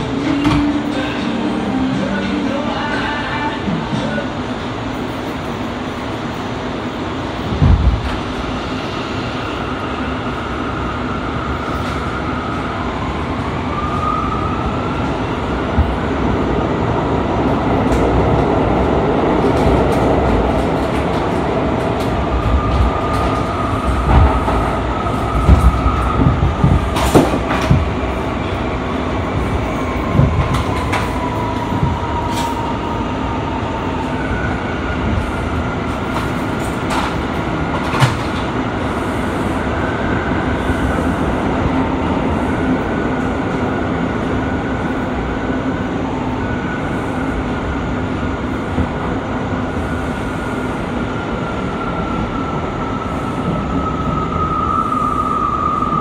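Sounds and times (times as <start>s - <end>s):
wheels rumbling on rail: 0.0s - 56.0s.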